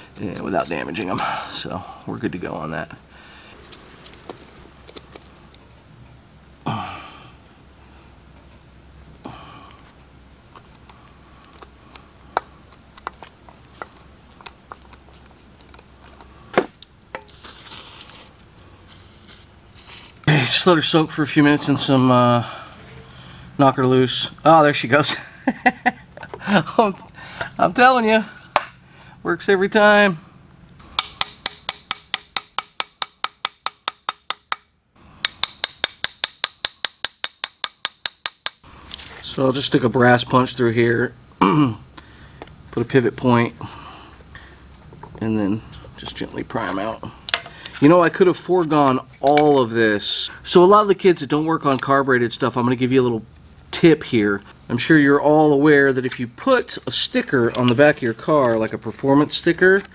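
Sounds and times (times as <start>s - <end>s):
short hiss: 17.3s - 20.2s
metal parts clicking and tapping: 30.8s - 38.6s, 46.7s - 47.9s, 57.5s - 58.7s.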